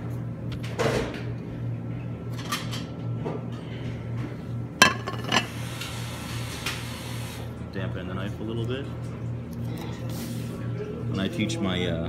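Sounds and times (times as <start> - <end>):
kitchenware clinking: 4.8 - 5.5
kitchenware rustling: 4.8 - 5.5.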